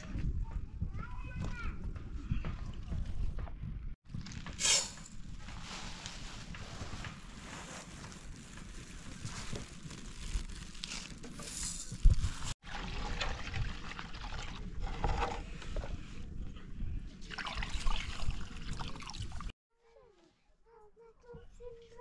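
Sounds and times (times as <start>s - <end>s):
water pouring into basin: 12.6s - 14.8s, 17.2s - 19.5s.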